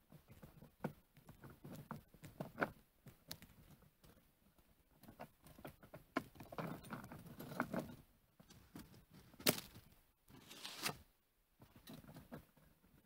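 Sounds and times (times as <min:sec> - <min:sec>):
rustling: 0:07.0 - 0:11.1.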